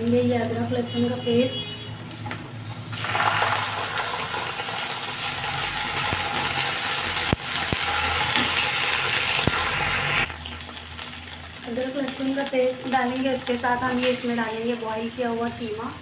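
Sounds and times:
onions sizzling in hot oil: 0:01.9 - 0:16.0
wooden spatula scraping pan: 0:07.8 - 0:09.2.

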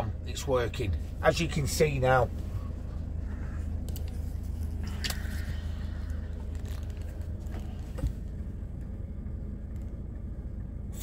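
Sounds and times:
air heater humming: 0:00.0 - 0:11.0.

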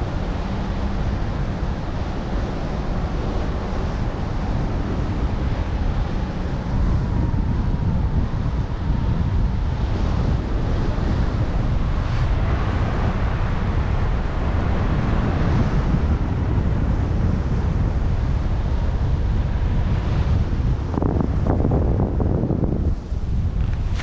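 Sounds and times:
wind buffeting microphone: 0:00.0 - 0:24.0.

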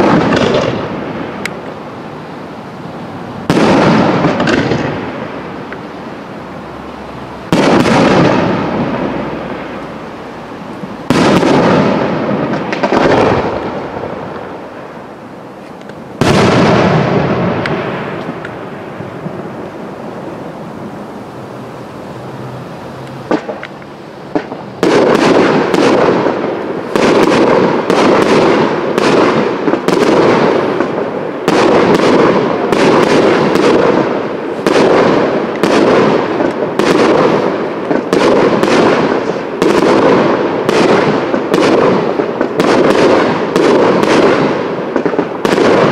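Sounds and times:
firework shells bursting: 0:03.4 - 0:05.8, 0:10.7 - 0:14.6, 0:23.0 - 0:45.9.

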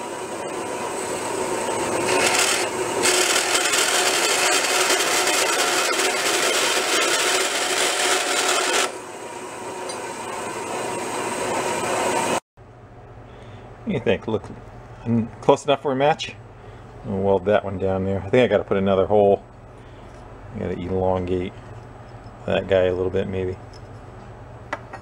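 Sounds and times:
bandsaw cutting metal: 0:01.9 - 0:09.0.

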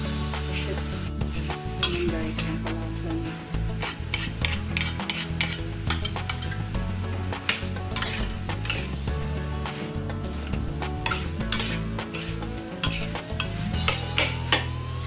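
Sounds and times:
food sizzling in a pan: 0:00.0 - 0:15.0
metal spatula scraping a wok: 0:03.6 - 0:14.5.

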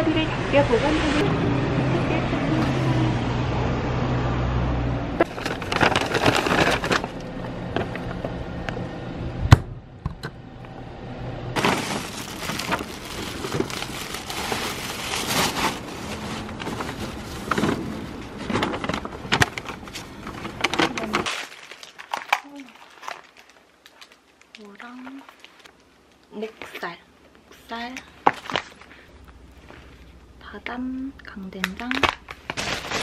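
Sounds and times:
low steady hum: 0:05.0 - 0:33.0
paper bag rustling: 0:05.2 - 0:07.4, 0:11.6 - 0:25.9, 0:31.9 - 0:33.0.

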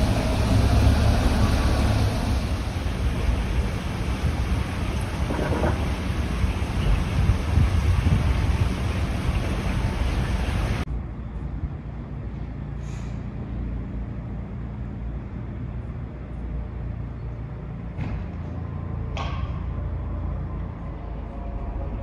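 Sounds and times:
engine rumbling: 0:00.0 - 0:22.0
short hiss: 0:12.8 - 0:13.3.

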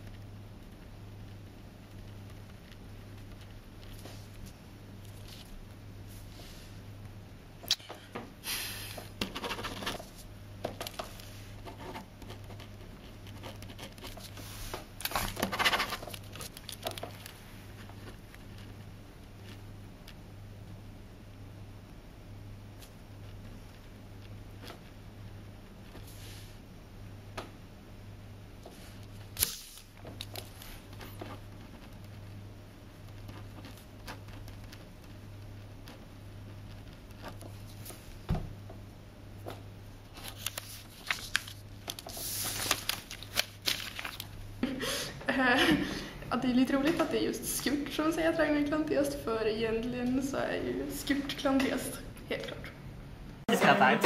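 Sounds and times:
steady low hum: 0:00.0 - 0:54.0
paper rustling and sliding: 0:14.0 - 0:18.6, 0:40.1 - 0:44.4.

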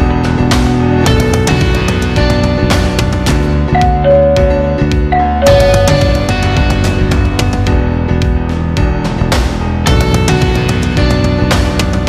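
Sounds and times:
loud music with fast beat: 0:00.0 - 0:12.0.

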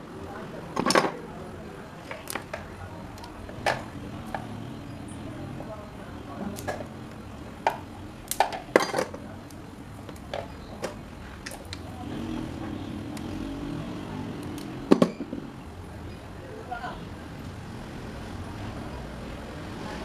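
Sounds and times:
metal tools clinking on workbench: 0:08.4 - 0:09.2.

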